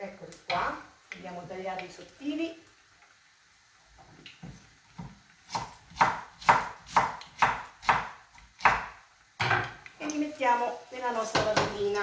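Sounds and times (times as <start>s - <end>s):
knife chopping on wooden board: 5.0s - 9.7s.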